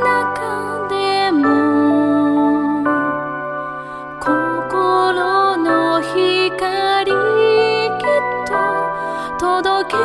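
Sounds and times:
woman singing with vibrato: 0.0s - 3.3s, 4.2s - 10.0s.

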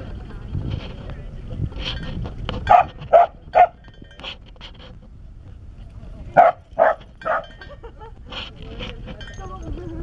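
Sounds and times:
dog barking: 2.7s - 3.8s, 6.4s - 7.5s.

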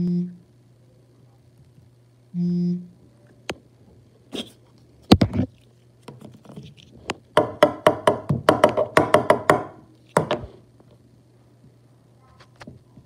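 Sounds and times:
hollow knocks on hard plastic: 7.4s - 10.5s.

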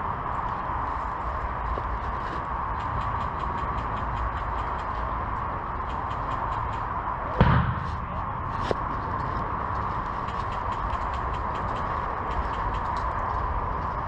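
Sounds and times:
faint rapid ticking: 2.4s - 7.2s, 9.6s - 14.0s
airsoft rifle shot thump: 7.4s - 8.2s.

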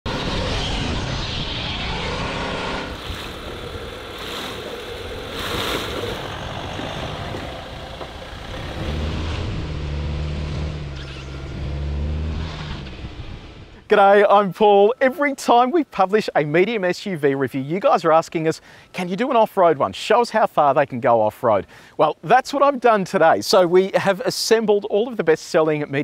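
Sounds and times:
low engine hum: 0.0s - 13.9s
car engine running: 2.5s - 13.8s
tyres rolling over dirt: 2.9s - 9.3s.

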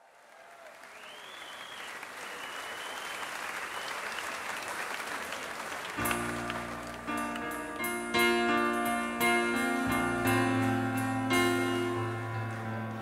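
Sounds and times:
stadium crowd applauding: 0.0s - 7.9s
whistles: 0.8s - 4.2s
music with sustained chords: 6.0s - 13.0s.

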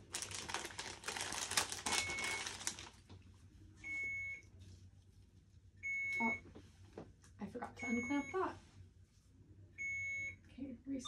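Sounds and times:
plastic packaging crinkling and tearing: 0.0s - 3.2s
infusion pump beep: 1.9s - 2.5s, 3.8s - 4.5s, 5.8s - 6.5s, 7.8s - 8.5s, 9.8s - 10.4s.

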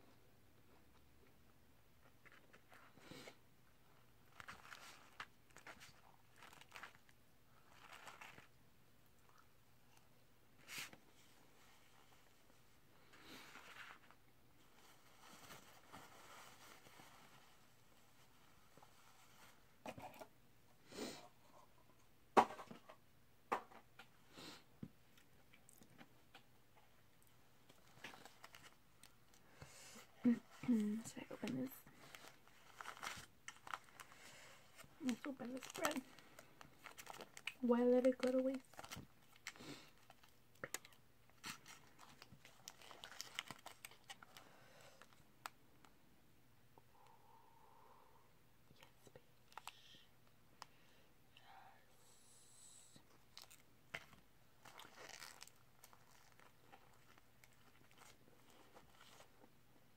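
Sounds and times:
plastic packet crinkling: 4.2s - 8.6s, 30.7s - 44.4s, 53.3s - 59.3s.

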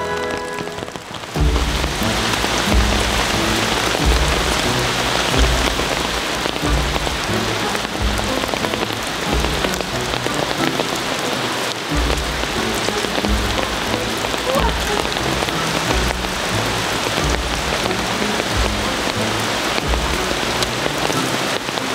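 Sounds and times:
music bass notes: 0.0s - 11.1s
rain pattering: 0.0s - 21.9s.

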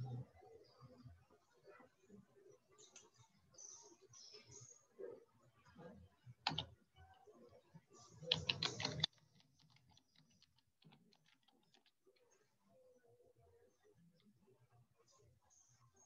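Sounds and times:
typing on computer keyboard: 6.5s - 6.7s, 8.2s - 12.0s.

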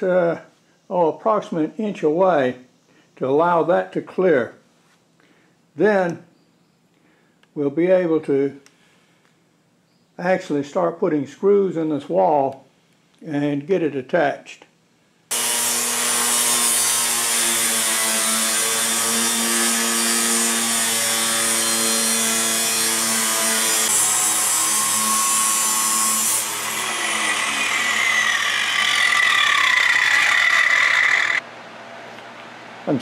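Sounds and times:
angle grinder cutting steel: 15.3s - 31.4s.

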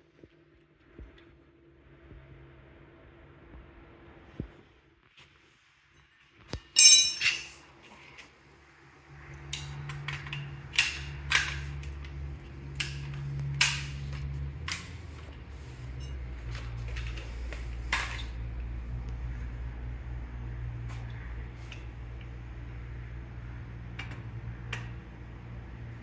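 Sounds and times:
low steady hum: 0.0s - 26.0s
metal clanks and clicks: 6.6s - 7.6s
loud ringing metal clank: 6.8s - 7.6s.

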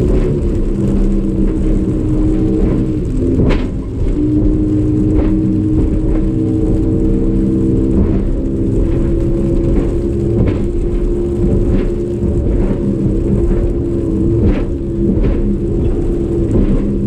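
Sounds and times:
hull knocking on waves: 0.0s - 17.0s
outboard motor running: 0.0s - 17.0s.

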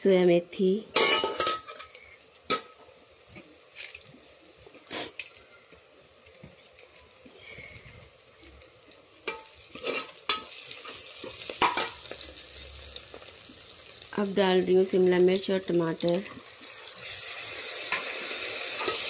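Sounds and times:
onions sizzling: 0.0s - 19.0s
spoon clinking and scraping pot: 9.2s - 12.0s.

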